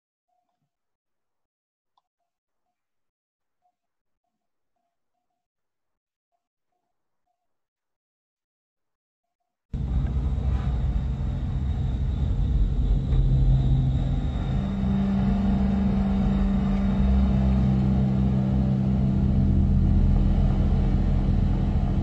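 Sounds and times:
higher hum: 0:09.8 - 0:22.0
low rumbling drone: 0:09.8 - 0:22.0.

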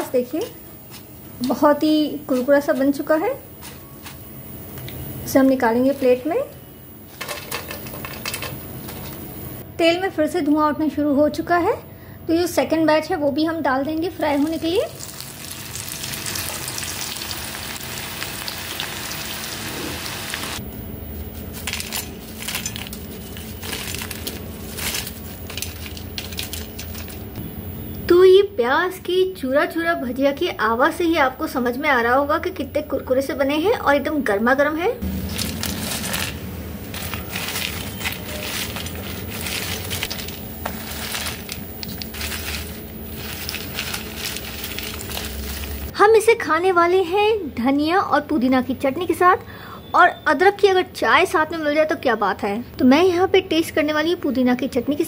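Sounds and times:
fritters rattling onto steel plate: 0:07.2 - 0:09.1
crispy fritters crunching: 0:14.3 - 0:18.9, 0:21.4 - 0:27.4, 0:35.1 - 0:45.9
food sizzling in hot oil: 0:14.4 - 0:20.6.

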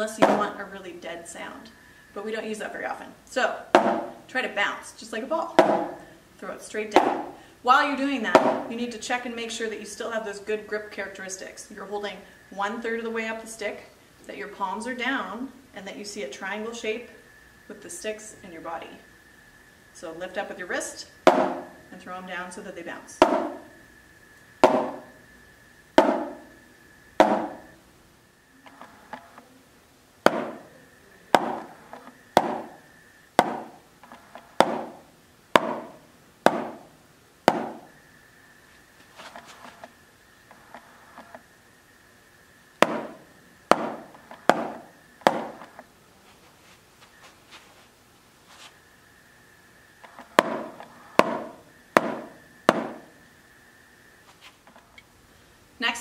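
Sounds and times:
drumsticks tapping practice pad: 0:03.7 - 0:04.2, 0:05.6 - 0:06.0, 0:08.3 - 0:08.7, 0:24.6 - 0:25.2, 0:26.0 - 0:26.5, 0:27.2 - 0:27.7, 0:30.2 - 0:30.7, 0:31.3 - 0:32.8, 0:33.4 - 0:33.8, 0:34.6 - 0:35.0, 0:35.6 - 0:36.9, 0:37.5 - 0:37.9, 0:42.8 - 0:45.8, 0:50.4 - 0:53.1.

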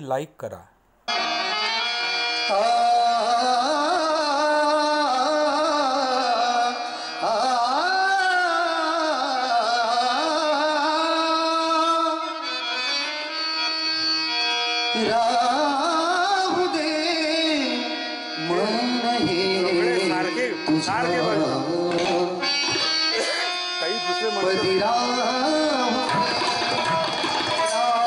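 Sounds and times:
harmonium: 0:01.1 - 0:28.0
tabla: 0:14.9 - 0:23.7, 0:24.6 - 0:28.0
men singing: 0:18.4 - 0:22.4, 0:24.4 - 0:28.0.

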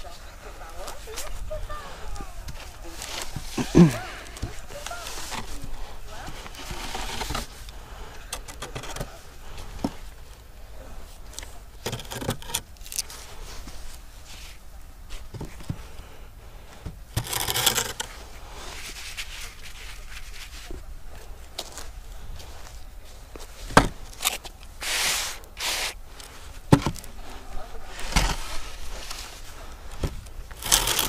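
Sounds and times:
board scraping through sand: 0:24.8 - 0:26.0.

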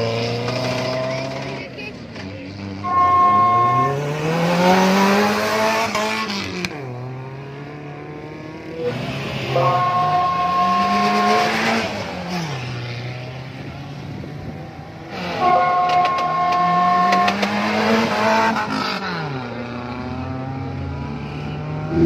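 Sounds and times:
jeep engines revving: 0:00.0 - 0:22.0
steady high tone: 0:02.8 - 0:04.2, 0:09.4 - 0:11.9, 0:15.4 - 0:16.9.

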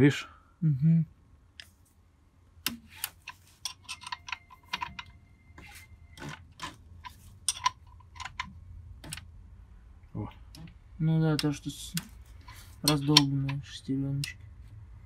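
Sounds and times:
hand tool tapping engine gears: 0:03.0 - 0:05.1, 0:10.5 - 0:14.4.

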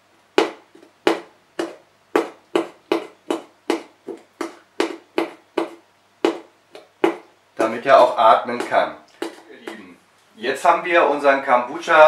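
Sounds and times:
skewer tapping through paper: 0:00.4 - 0:09.9.

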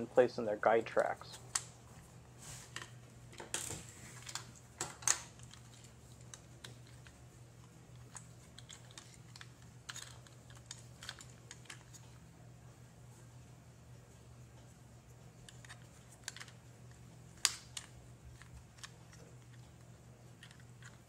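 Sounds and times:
faint low hum: 0:00.0 - 0:21.0
plastic parts clicking: 0:08.1 - 0:12.0, 0:15.5 - 0:16.6, 0:17.4 - 0:19.6, 0:20.4 - 0:21.0.

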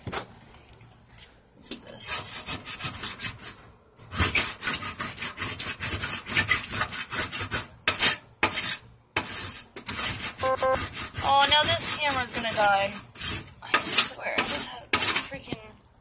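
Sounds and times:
small tool scraping burnt spot: 0:10.9 - 0:15.4.

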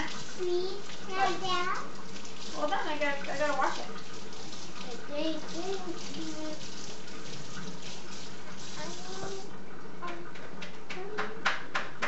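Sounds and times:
tap water running: 0:00.0 - 0:11.8.

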